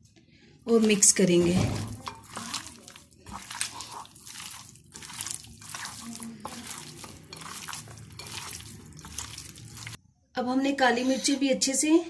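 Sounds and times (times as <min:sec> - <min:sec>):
wet squelching of raw chicken: 0:00.7 - 0:10.0.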